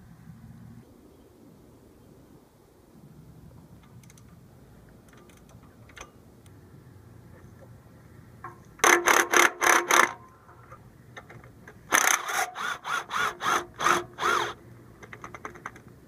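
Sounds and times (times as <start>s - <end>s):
cordless power ratchet bursts: 8.8s - 10.2s, 11.9s - 14.6s.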